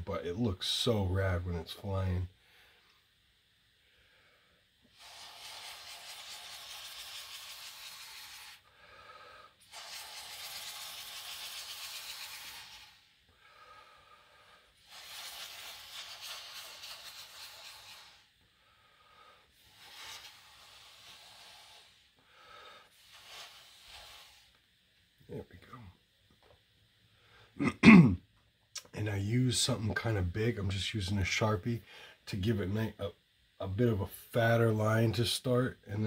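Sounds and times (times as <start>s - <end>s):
person breathing slowly: 2.4s - 3.0s, 3.8s - 4.7s, 8.6s - 9.6s, 13.3s - 14.8s, 18.4s - 19.7s, 21.8s - 23.1s, 31.8s - 32.2s.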